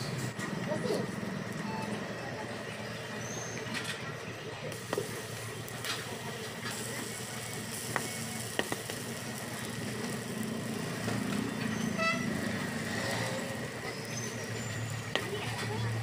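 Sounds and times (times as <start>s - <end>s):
vehicle low hum: 0.0s - 16.0s
food sizzling on griddle: 4.7s - 16.0s.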